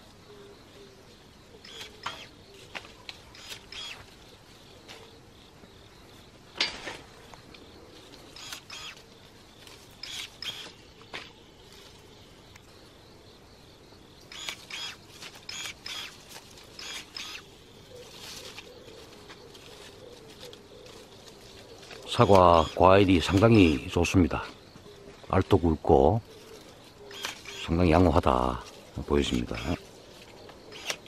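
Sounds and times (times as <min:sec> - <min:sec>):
electric pruning shears snipping: 0:01.6 - 0:04.2, 0:08.3 - 0:09.1, 0:09.9 - 0:10.8, 0:14.3 - 0:17.5, 0:21.9 - 0:23.5, 0:27.1 - 0:28.4, 0:29.3 - 0:29.8, 0:30.8 - 0:31.0.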